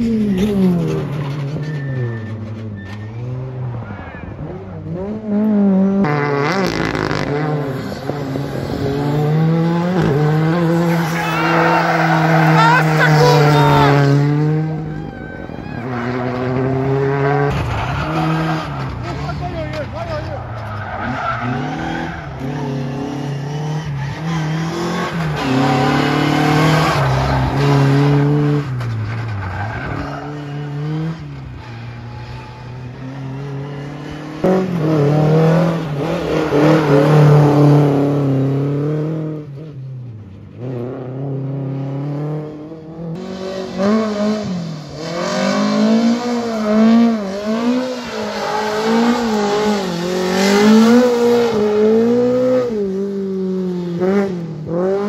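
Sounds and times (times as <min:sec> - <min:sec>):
rally car engines revving: 0:00.0 - 0:55.0
tyre squeal: 0:01.2 - 0:04.4, 0:10.8 - 0:14.0.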